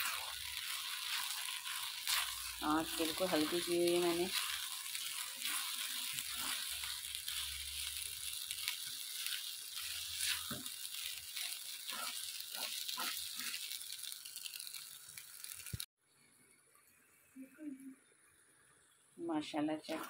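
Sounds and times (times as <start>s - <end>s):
spatula scraping in a pan: 0.0s - 15.8s.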